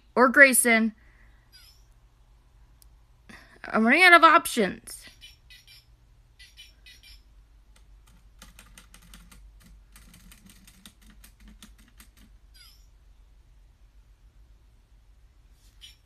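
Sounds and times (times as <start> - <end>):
short falling squeak: 1.5 - 1.9, 5.1 - 7.3, 12.6 - 12.9, 15.7 - 16.0
toy motor and gears clicking: 5.1 - 7.3.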